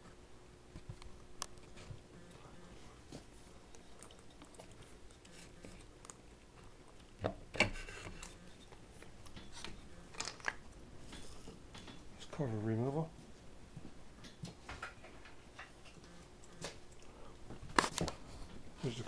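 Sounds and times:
metal cover rubbing: 7.6 - 8.7.

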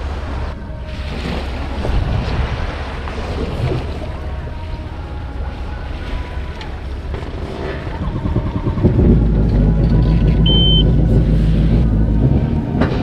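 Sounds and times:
jet ski engine idling: 4.0 - 13.0
short high beep: 10.4 - 10.9.

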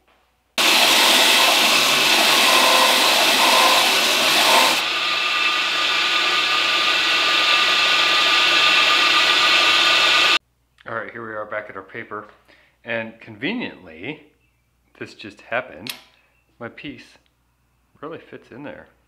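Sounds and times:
belt grinder grinding steel: 0.6 - 10.4.

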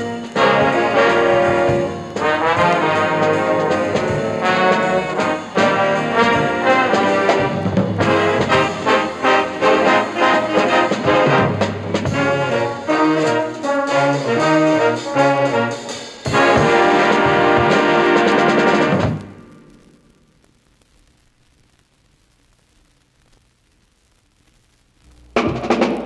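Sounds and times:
school band playing brass: 0.0 - 19.4.

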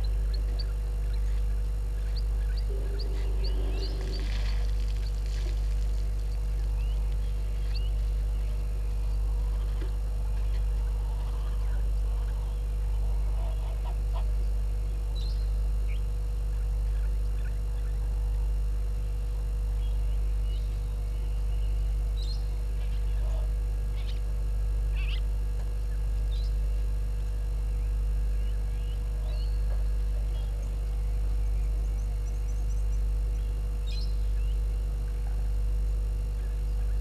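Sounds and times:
bird chirps: 0.0 - 5.6
low pulsing hum: 0.0 - 37.0.

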